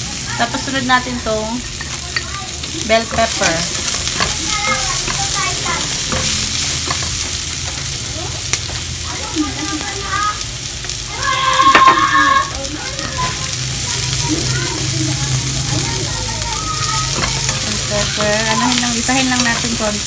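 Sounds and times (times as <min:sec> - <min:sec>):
vegetables sizzling in oil: 0:00.0 - 0:20.0
spatula clicking against pan: 0:12.5 - 0:20.0.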